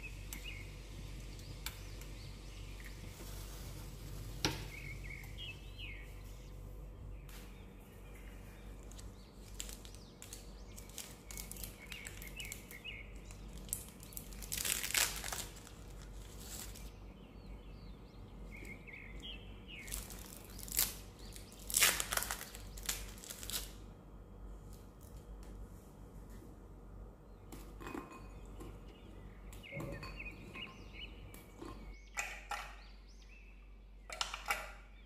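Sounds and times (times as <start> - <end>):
plastic wrappers crinkling and tearing: 8.8 - 16.9, 19.8 - 23.8.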